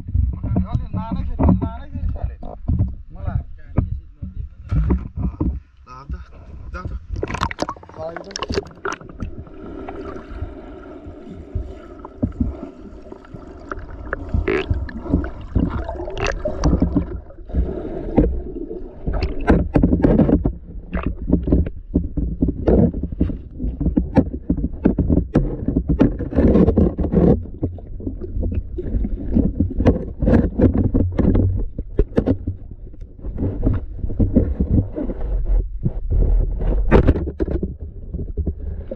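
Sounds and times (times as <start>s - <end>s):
underwater rumble of moving water: 0.0s - 38.9s.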